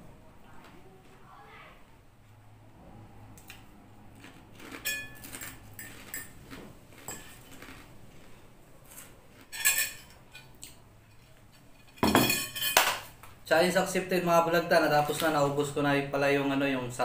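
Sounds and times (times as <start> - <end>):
fork and spoon clinking on bowl: 4.7 - 6.4, 7.0 - 7.6, 9.5 - 13.1.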